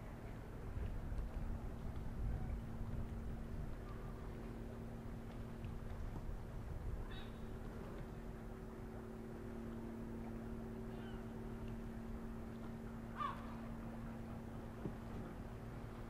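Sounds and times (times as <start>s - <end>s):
low machinery hum: 0.0s - 16.0s
bird calling: 7.0s - 7.5s, 10.8s - 11.4s, 13.1s - 13.7s.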